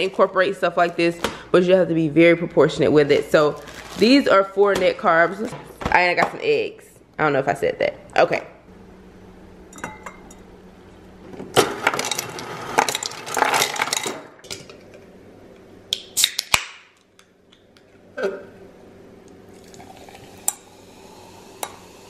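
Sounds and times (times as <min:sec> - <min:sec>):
glassware clinking: 0:09.7 - 0:10.4
ice rattling into glass: 0:11.8 - 0:14.2.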